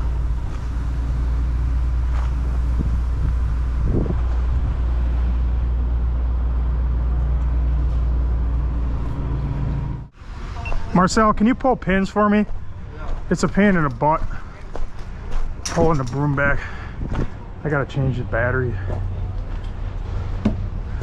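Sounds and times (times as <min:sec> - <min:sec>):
engine idling: 0:00.0 - 0:10.1.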